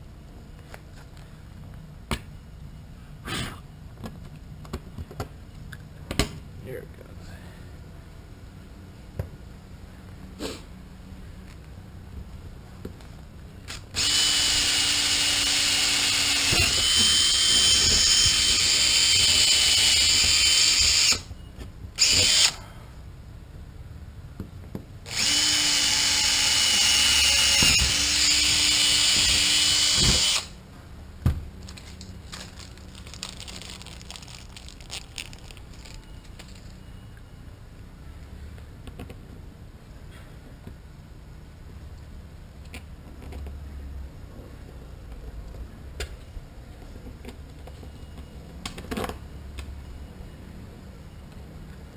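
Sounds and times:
cordless drill whining: 13.7 - 21.3, 22.0 - 22.6, 25.1 - 30.6.

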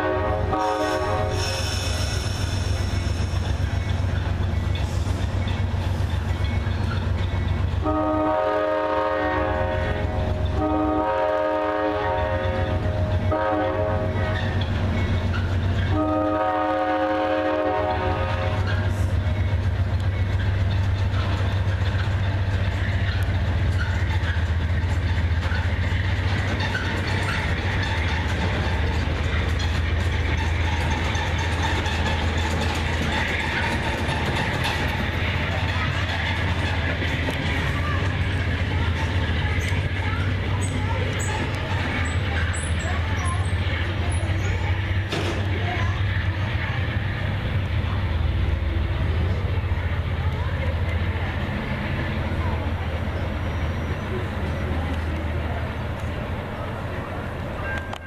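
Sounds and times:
diesel locomotive horn: 0.0 - 1.6, 7.8 - 14.6, 15.8 - 18.9
idling train hum: 0.0 - 58.0.

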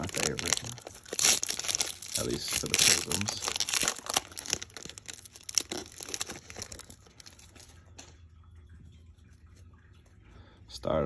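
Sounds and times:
cards rustling: 0.0 - 7.8
plastic wrapper crinkling: 0.0 - 8.1.

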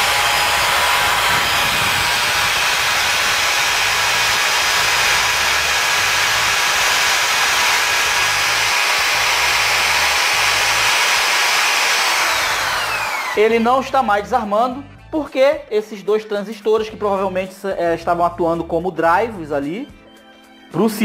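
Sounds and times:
electric drill running: 0.0 - 14.9.

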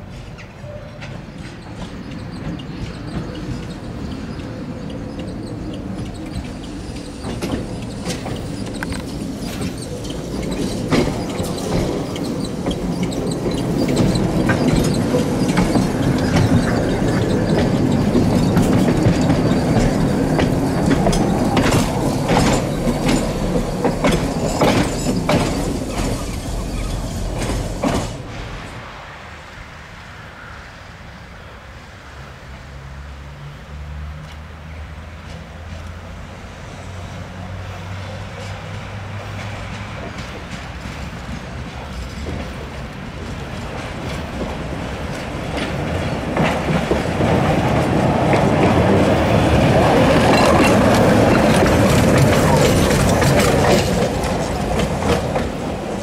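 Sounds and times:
wheels clicking on rail joints: 0.0 - 28.4, 34.2 - 56.0
low steady tram hum: 0.0 - 56.0
tram rumbling on track: 0.0 - 56.0.

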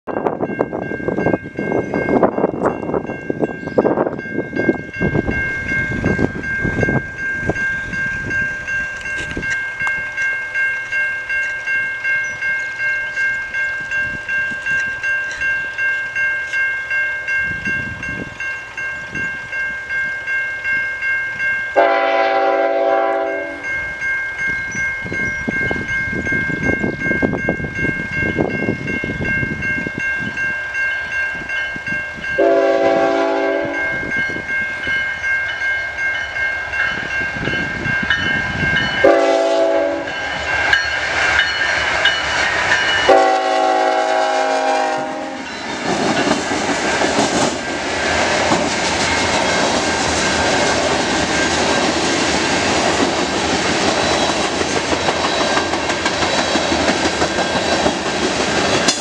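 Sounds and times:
railway crossing bell ringing: 0.0 - 59.0
wind buffeting microphone: 0.1 - 10.2, 13.4 - 15.7, 17.4 - 21.6, 23.6 - 43.2
locomotive horn blast: 21.8 - 23.6, 32.4 - 33.8, 39.0 - 40.2, 43.1 - 45.5.

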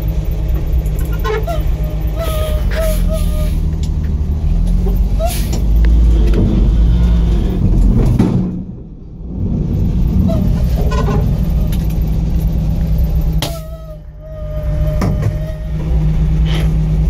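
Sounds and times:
truck engine running: 0.0 - 17.0.

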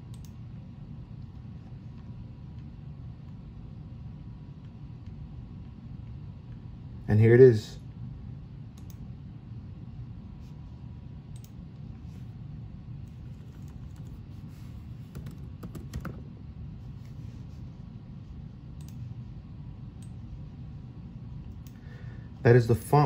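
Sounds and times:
low steady hum: 0.0 - 23.0
laptop keyboard clicks: 15.1 - 16.2.

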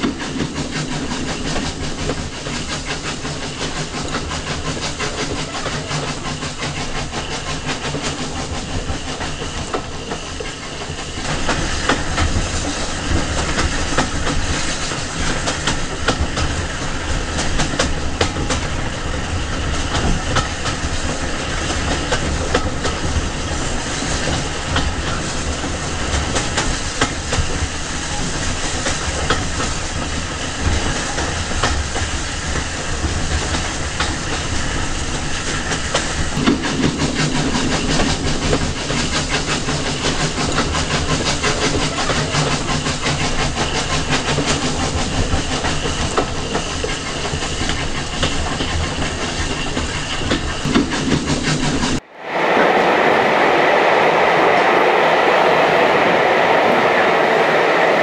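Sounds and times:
train rumble: 0.0 - 58.0
train wheels clickety-clack: 0.0 - 58.0
deeper sound: 52.0 - 58.0.

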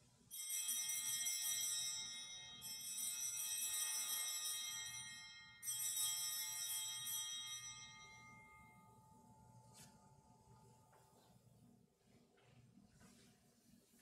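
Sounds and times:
altar bells ringing: 0.3 - 9.6.

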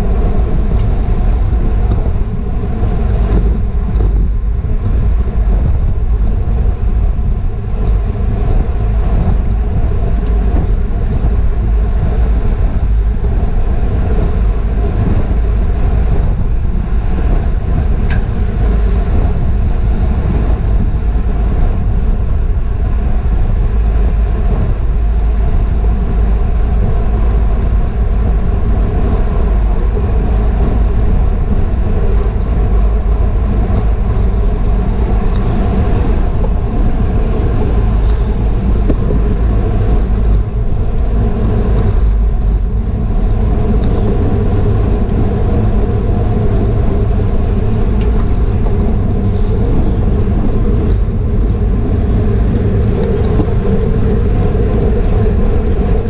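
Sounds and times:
wind rumble on microphone: 0.0 - 56.0.

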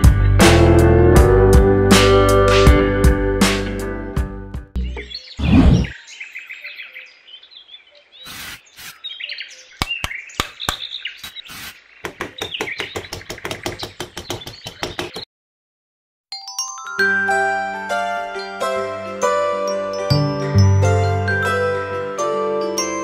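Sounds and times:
small birds chirping: 4.8 - 15.3
trowel tapping and scraping sand: 9.8 - 15.3.

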